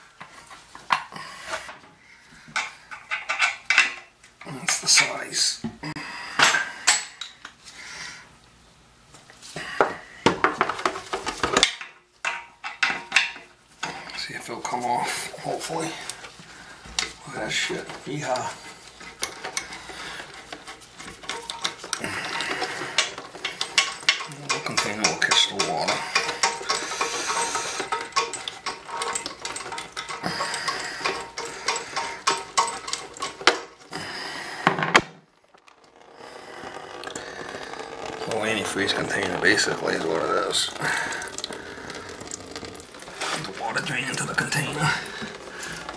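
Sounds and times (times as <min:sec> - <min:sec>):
hand tools clicking and scraping: 0:00.0 - 0:05.3, 0:09.7 - 0:45.9
metal tool clinking on fittings: 0:21.1 - 0:33.7.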